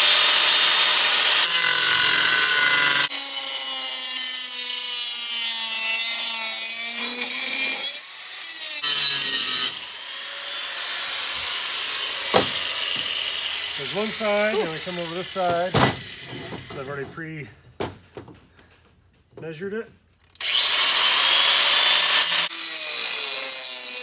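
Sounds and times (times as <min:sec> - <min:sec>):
angle grinder cutting metal: 0:00.0 - 0:17.1, 0:20.4 - 0:24.0.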